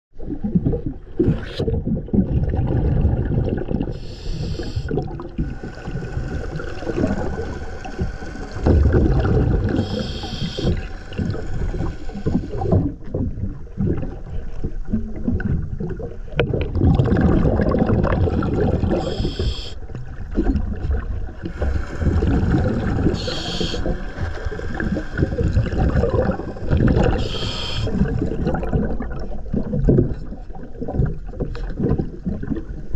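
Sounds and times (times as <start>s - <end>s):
bubbling exhaled air: 0.4s - 32.6s
hissing regulator inhales: 4.0s - 12.8s, 18.9s - 19.8s, 21.4s - 28.1s.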